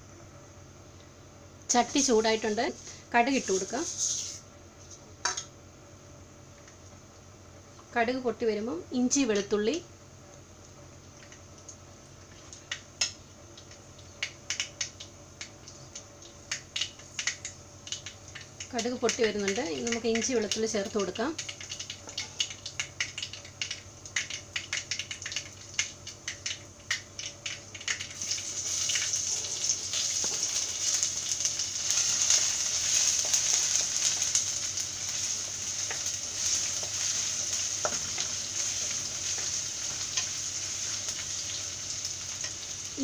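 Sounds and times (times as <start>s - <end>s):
oil sizzling: 1.7s - 5.6s, 10.6s - 43.0s
mustard seeds popping in oil: 10.6s - 43.0s.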